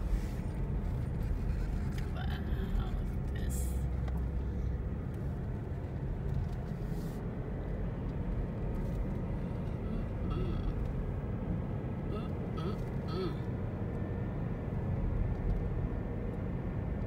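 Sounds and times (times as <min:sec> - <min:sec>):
car cabin road noise: 0:00.0 - 0:17.0.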